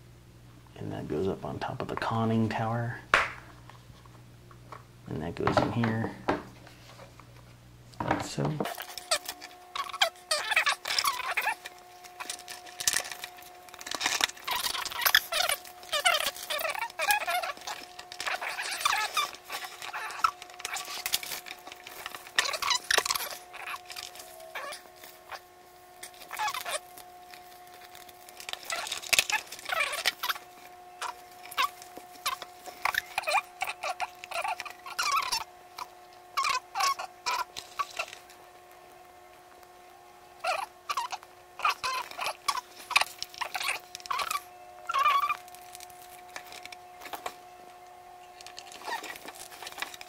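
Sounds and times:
sticker backing crackles: 1.1s - 50.0s
stickers squeaking on plastic: 5.2s - 6.1s, 8.3s - 39.0s, 40.4s - 50.0s
plastic scraping on plastic: 5.3s - 25.4s.

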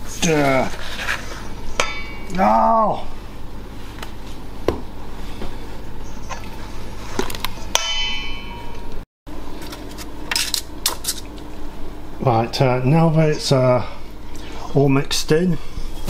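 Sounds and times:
ringing clang: 1.8s - 2.4s, 7.7s - 9.0s.

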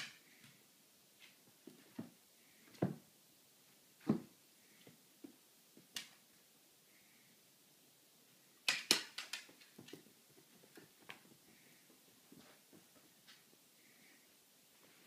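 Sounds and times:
dog and cat scuffling: 9.3s - 13.7s.

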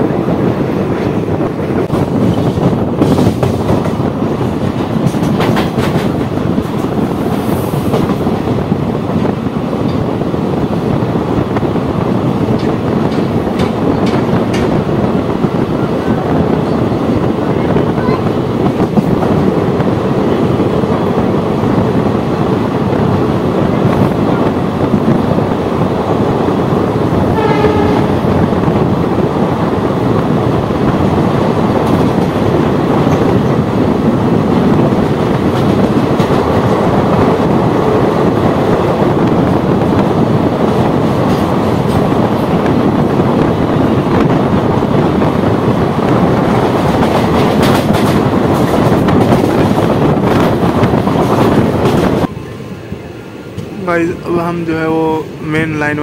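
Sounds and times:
train coach wheel clatter: 0.0s - 56.0s
train horn: 27.3s - 28.3s.

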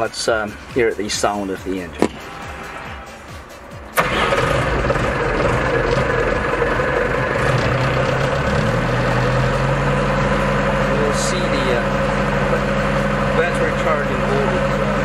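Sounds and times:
diesel engine starting and idling: 3.7s - 15.0s.

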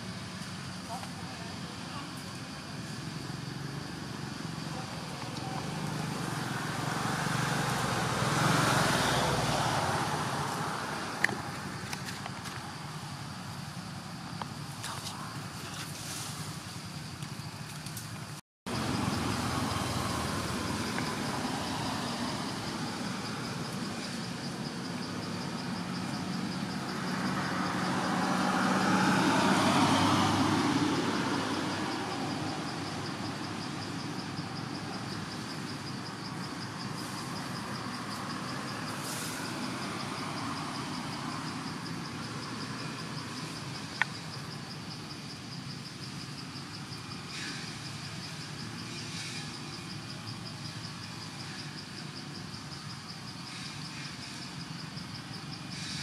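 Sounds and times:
high insect trill: 0.0s - 56.0s
vehicle passing: 2.4s - 13.5s, 18.7s - 44.5s.

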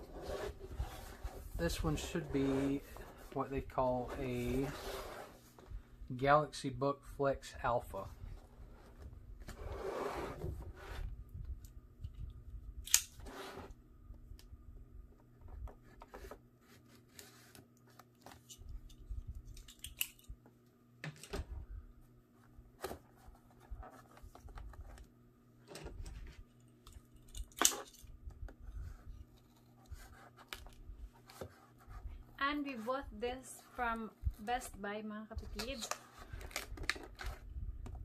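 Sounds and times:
cardboard rustling and scraping: 0.0s - 5.7s, 8.2s - 11.2s, 22.4s - 25.1s, 28.6s - 34.8s.

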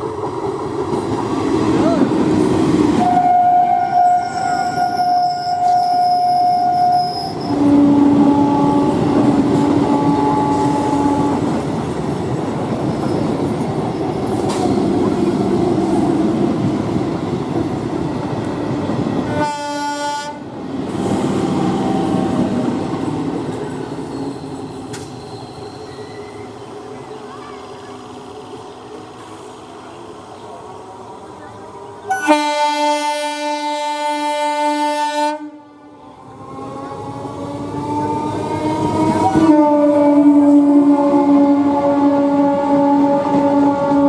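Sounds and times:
train rumble and wheel clatter: 0.0s - 44.0s
train horn blasts: 3.0s - 11.5s, 19.3s - 20.4s, 32.1s - 35.7s, 38.9s - 44.0s.

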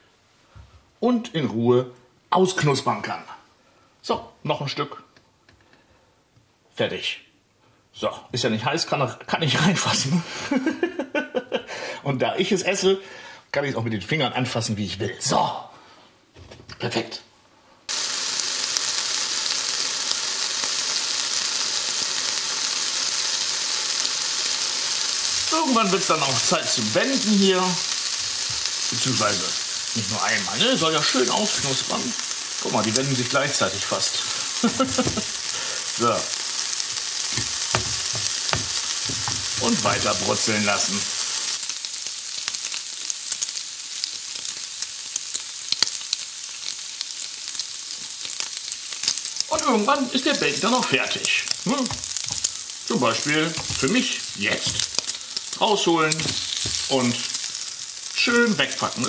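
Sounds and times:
bacon sizzling in a grill pan: 17.9s - 59.0s.

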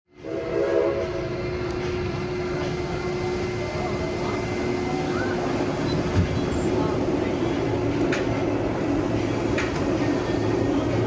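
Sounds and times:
steam train rumble: 0.1s - 11.0s.

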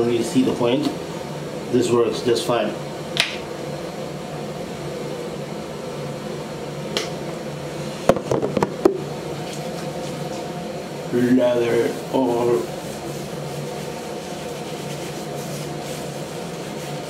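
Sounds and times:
low machine hum: 0.0s - 17.0s.

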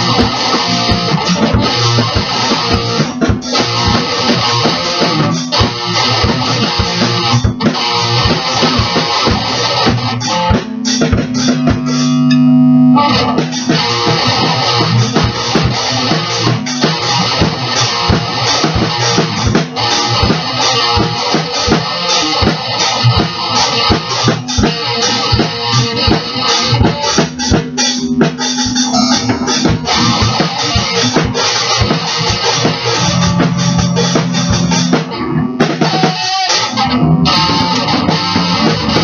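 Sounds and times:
electric guitar strumming: 0.0s - 39.0s.

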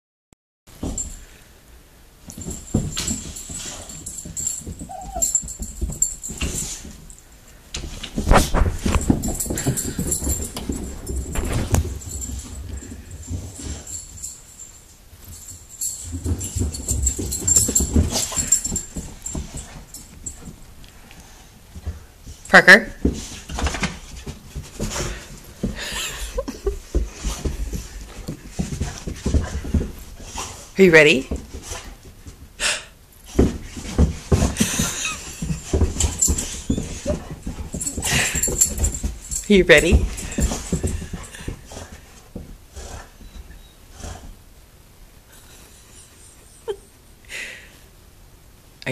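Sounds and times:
dog paws thudding on floor: 0.7s - 1.4s, 2.2s - 44.4s
scuffling: 2.2s - 32.6s, 33.2s - 44.4s
dog whimpering and huffing: 3.6s - 5.8s, 34.4s - 39.0s, 42.7s - 44.4s, 45.4s - 47.0s
dog whining: 4.8s - 5.7s, 36.3s - 38.4s, 43.0s - 44.2s
dog squeaks: 4.9s - 5.4s
dog huffing breaths: 8.1s - 14.3s, 16.4s - 30.8s, 31.4s - 44.4s.

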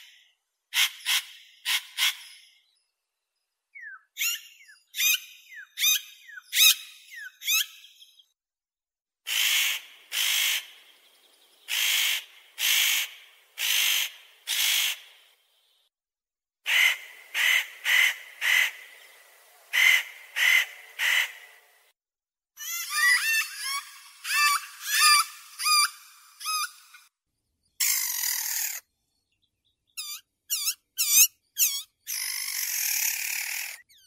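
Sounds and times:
bird chirping: 2.0s - 8.4s, 22.6s - 34.0s
harsh rasping bird calls: 9.3s - 10.9s, 11.7s - 15.2s, 16.7s - 21.6s, 22.6s - 27.1s, 27.8s - 28.9s, 29.9s - 34.0s.

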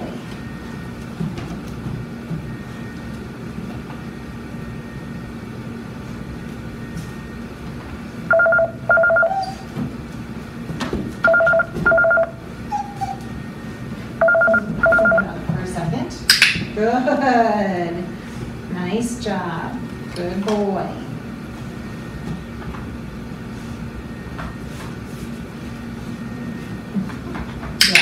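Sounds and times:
steady low hum: 0.0s - 28.0s
telephone ringing: 8.3s - 9.6s, 11.2s - 12.4s, 14.2s - 15.3s.

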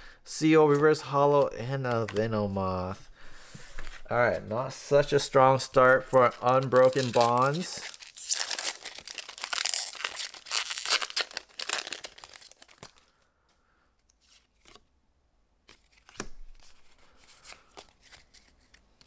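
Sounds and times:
foil wrapper tearing and crinkling: 6.3s - 13.1s.

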